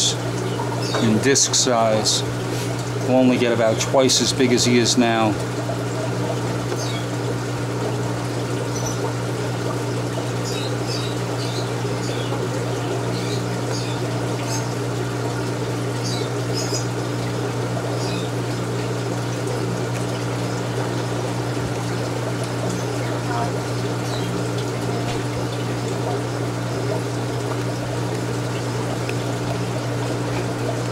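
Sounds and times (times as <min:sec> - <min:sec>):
aquarium pumps humming: 0:00.0 - 0:30.9
water trickling: 0:00.0 - 0:30.9.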